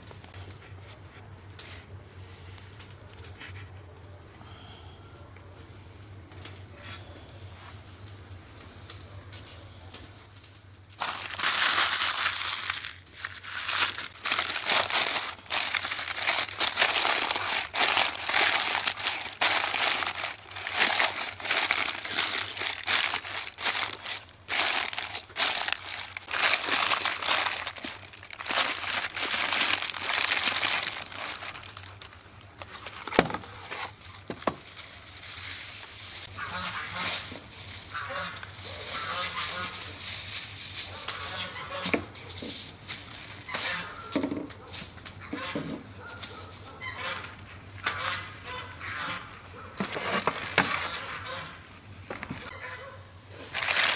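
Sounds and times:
paper crinkling and rustling: 0:10.3 - 0:46.8, 0:49.8 - 0:51.4, 0:53.4 - 0:53.9.

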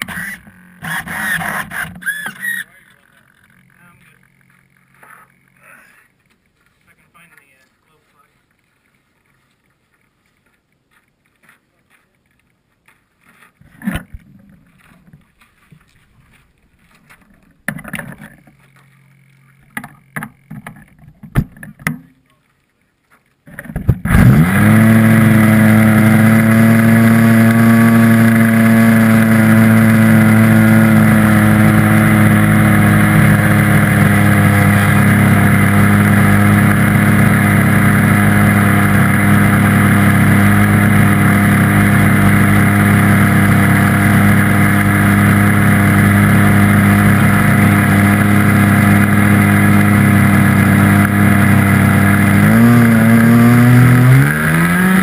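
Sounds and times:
model airplane engine running: 0:23.7 - 0:55.0.

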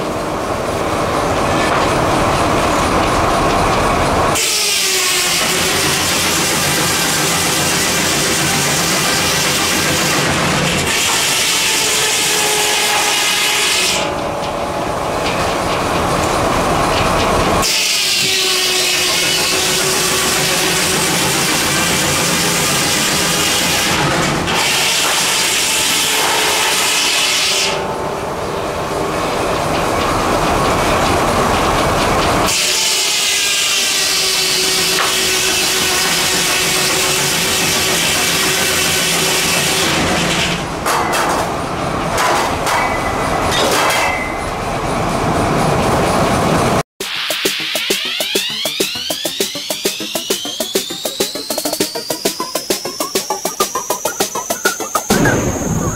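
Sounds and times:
saw blade cutting log: 0:04.4 - 0:14.2, 0:17.6 - 0:27.8, 0:32.5 - 0:40.6.

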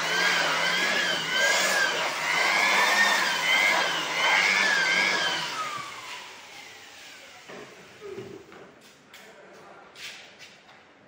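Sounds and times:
vacuum motor winding down: 0:00.0 - 0:08.1
vacuum cleaner motor running: 0:00.0 - 0:08.3.

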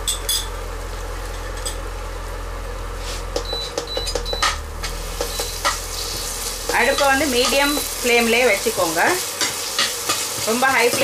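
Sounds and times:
steady low hum: 0:00.0 - 0:11.0
onions sizzling in a pan: 0:04.4 - 0:11.0
metal spoon scraping a pan: 0:09.3 - 0:11.0.

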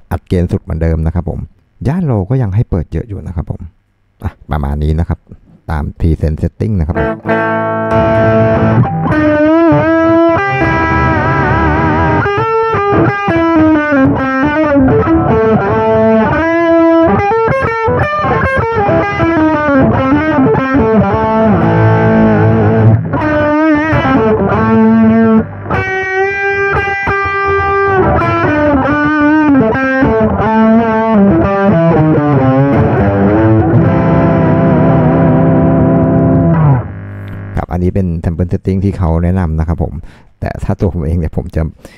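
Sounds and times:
distorted electric guitar lead: 0:06.9 - 0:37.7.

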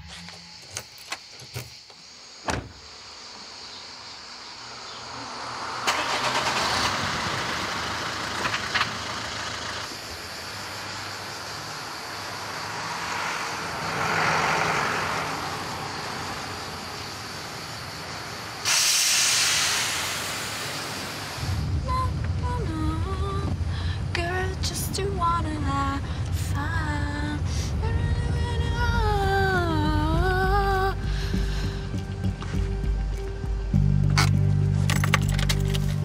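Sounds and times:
street traffic: 0:00.0 - 0:36.0
vehicle passing: 0:04.5 - 0:08.4, 0:10.6 - 0:18.6
loud hiss: 0:16.8 - 0:21.9
music with low beat: 0:30.0 - 0:34.9.

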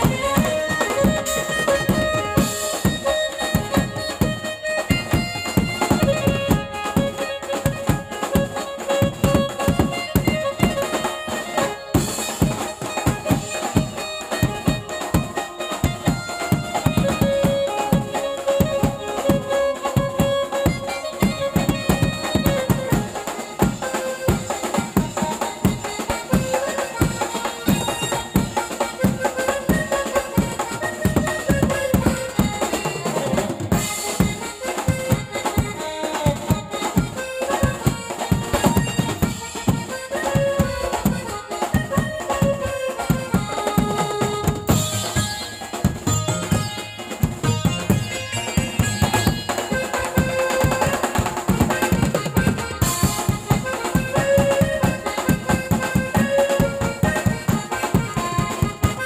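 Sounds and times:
electronic keyboard folk melody: 0:00.0 - 0:59.0
fast drum beat: 0:00.0 - 0:59.0.

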